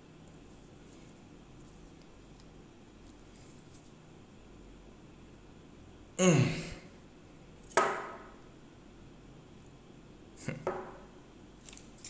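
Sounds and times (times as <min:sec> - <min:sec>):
man sighing: 0:06.2 - 0:06.9.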